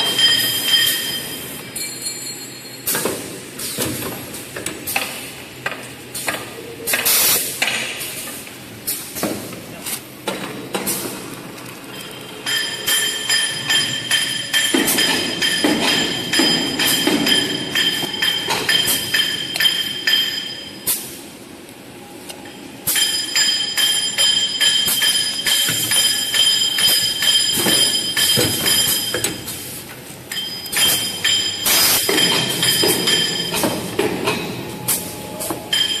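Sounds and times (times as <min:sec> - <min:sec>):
machinery clicking and clatter: 0:09.9 - 0:20.5, 0:22.4 - 0:36.0.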